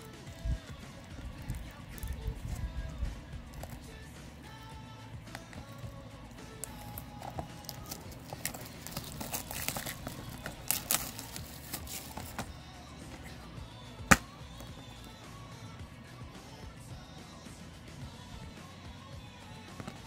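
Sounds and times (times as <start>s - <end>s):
plastic wrap crinkling: 6.6s - 12.6s
plastic case snapping open: 6.7s - 12.5s, 14.1s - 14.8s.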